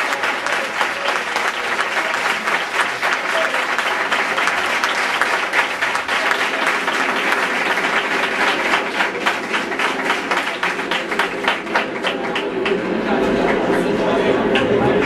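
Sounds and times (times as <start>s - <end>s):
audience applauding: 0.0s - 15.0s.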